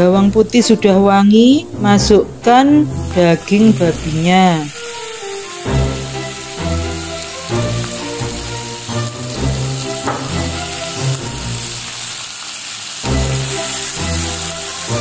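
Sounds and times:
background music: 0.0s - 12.2s, 13.0s - 15.0s
meat sizzling in oil: 3.0s - 15.0s.

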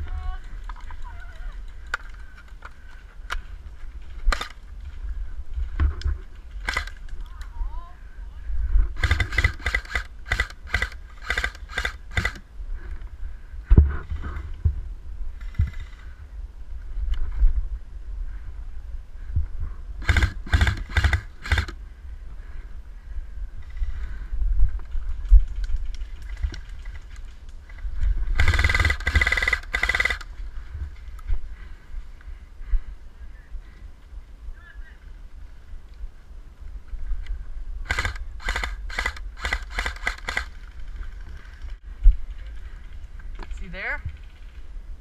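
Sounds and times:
low wind rumble: 0.0s - 45.0s
airsoft rifle shots: 6.6s - 6.9s, 9.0s - 12.4s, 20.0s - 21.7s, 28.4s - 30.2s.

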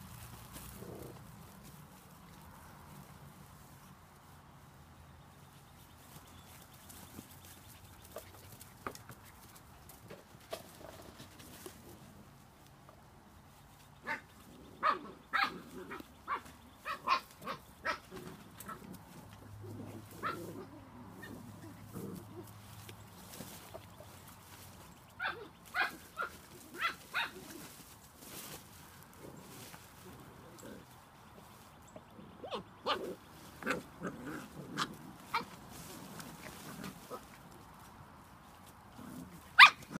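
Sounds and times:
puppies yipping: 14.0s - 19.2s, 20.0s - 27.9s, 31.9s - 37.3s, 39.5s - 40.0s
puppy yipping: 39.6s - 40.0s.

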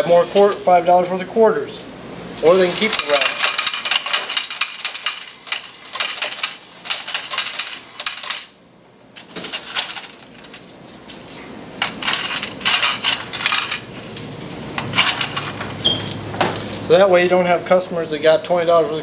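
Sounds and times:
coins clattering into metal cup: 2.6s - 8.6s, 9.2s - 16.9s.

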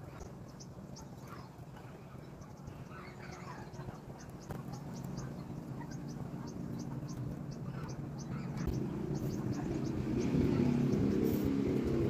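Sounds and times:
engine low drone: 2.8s - 12.0s.

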